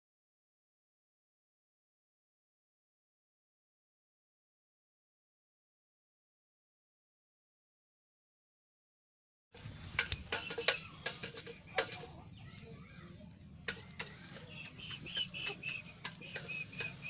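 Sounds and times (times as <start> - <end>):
small bird chirping: 9.7 - 17.0
sharp clicks and taps: 9.9 - 12.2.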